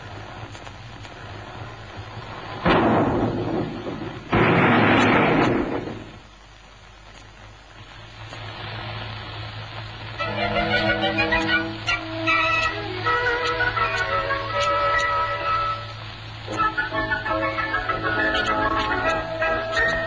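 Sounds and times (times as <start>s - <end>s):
low steady hum: 0.0s - 20.0s
car crashing down rocky slope: 2.6s - 6.2s.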